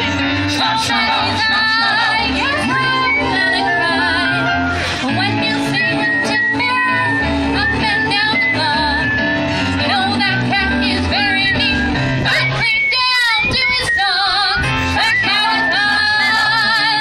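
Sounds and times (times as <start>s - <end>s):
low bass line: 0.0s - 12.8s
vocal ensemble singing in harmony: 0.0s - 13.0s, 14.0s - 17.0s.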